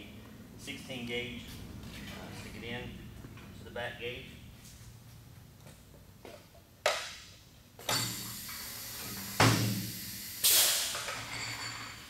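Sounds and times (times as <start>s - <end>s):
exhaust air blast: 8.2s - 11.1s
compressed air hisses: 8.5s - 11.1s.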